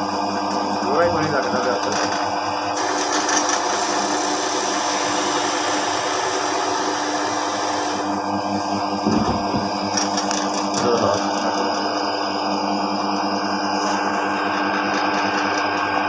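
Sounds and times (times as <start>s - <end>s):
wood lathe running: 0.8s - 8.9s
chisel cutting wood: 2.8s - 8.2s.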